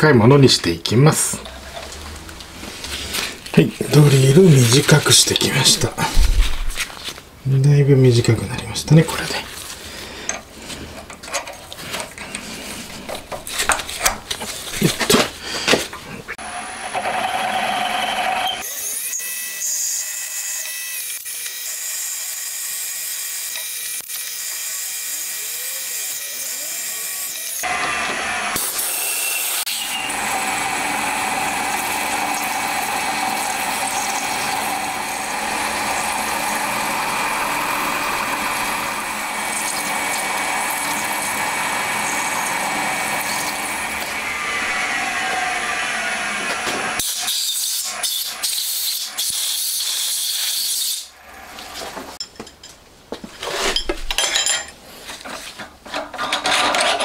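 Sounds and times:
milling machine spindle whining: 0:16.4 - 0:18.6, 0:29.7 - 0:47.0.

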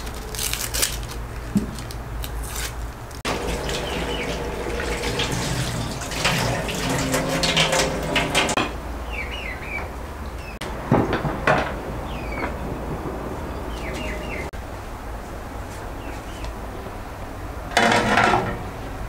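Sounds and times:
tap water running into a sink: 0:03.3 - 0:08.6
birds chirping: 0:03.3 - 0:14.6, 0:15.9 - 0:17.2
sharp knocks: 0:10.6 - 0:12.7.

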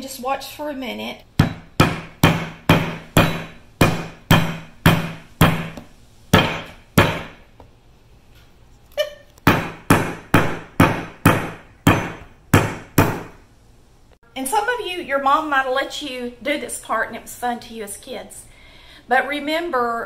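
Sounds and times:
meat mallet pounding steak: 0:01.4 - 0:07.5, 0:09.4 - 0:13.4.

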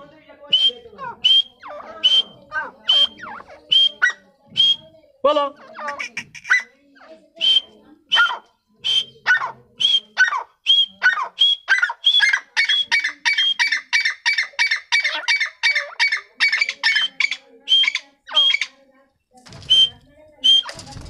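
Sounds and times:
francolin calling: 0:00.6 - 0:04.8, 0:08.2 - 0:18.7.

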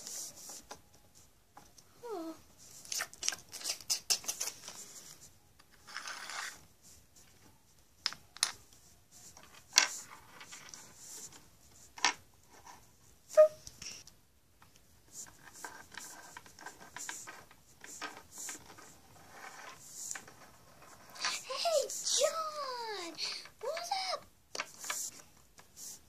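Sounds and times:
plastic toys clicking on floor: 0:02.9 - 0:04.8.

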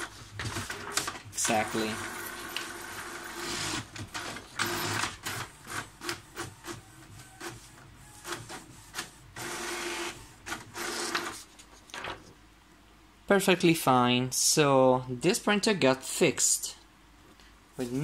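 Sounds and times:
paper feed clicks: 0:03.4 - 0:12.2.

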